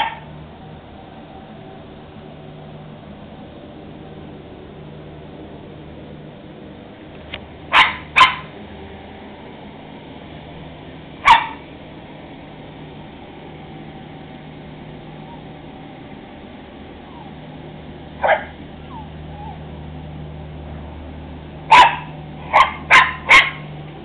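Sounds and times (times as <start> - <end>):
dog barking: 0.0 - 0.3, 7.7 - 8.5, 11.2 - 11.6, 18.2 - 18.6, 21.7 - 23.7.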